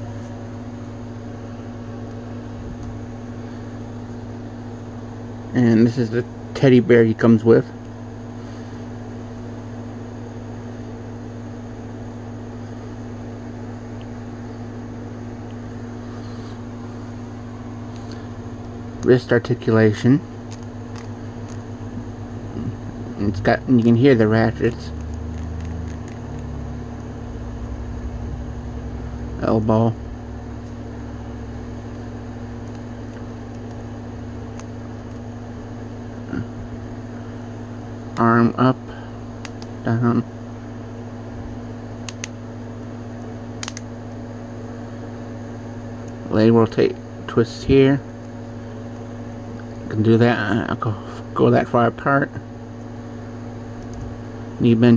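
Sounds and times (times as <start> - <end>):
appliance humming: 0.0 - 54.9
low drone: 22.2 - 32.7.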